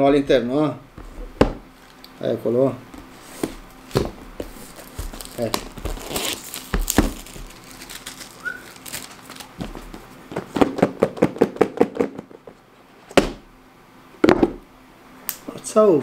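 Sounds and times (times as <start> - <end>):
plastic wrap crinkling: 1.7 - 2.1, 3.1 - 10.1.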